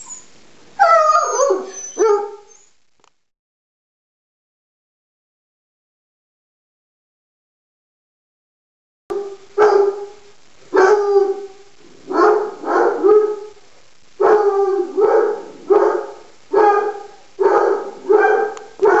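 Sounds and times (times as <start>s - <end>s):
dog barking: 0.9s - 2.6s, 9.1s - 13.6s, 14.2s - 19.0s.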